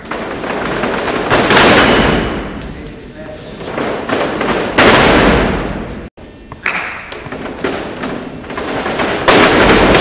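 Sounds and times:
feet stamping on hall floor: 0.0 - 3.0.

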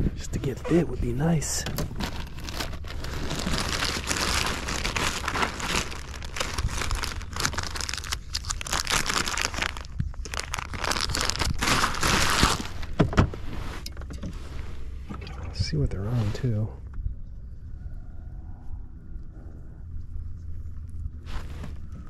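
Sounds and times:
steady low rumble: 0.0 - 22.0
plastic crinkling and rustling: 0.2 - 13.8.

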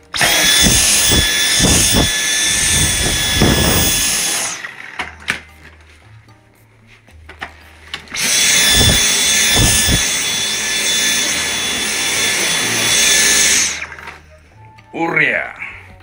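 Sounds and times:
vacuum cleaner whine and suction: 0.0 - 5.3, 8.0 - 14.2.

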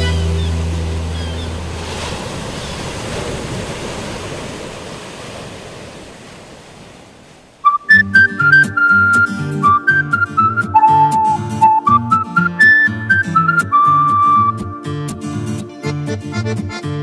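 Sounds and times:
sea surf washing: 0.0 - 14.5.

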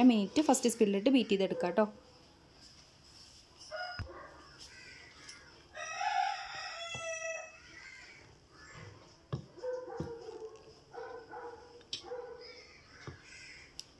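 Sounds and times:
rooster crowing: 5.7 - 7.9.

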